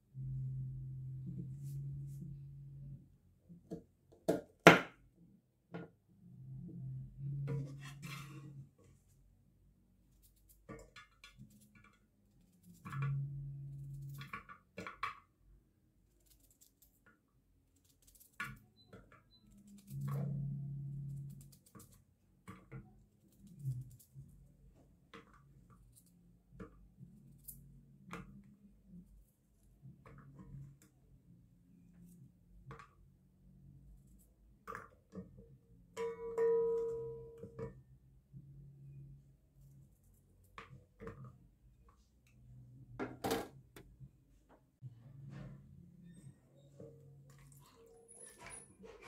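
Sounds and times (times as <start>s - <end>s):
low steady hum: 0.0s - 3.6s.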